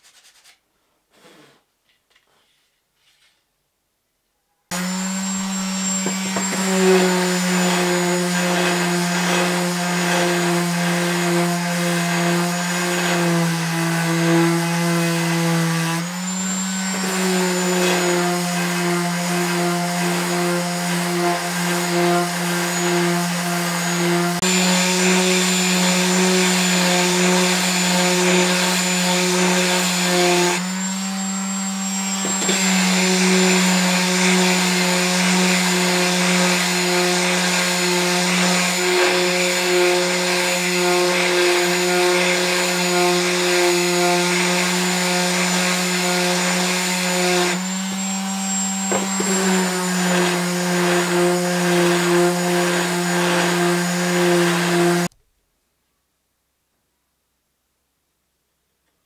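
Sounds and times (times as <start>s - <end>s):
power tool motor whining: 4.7s - 55.1s.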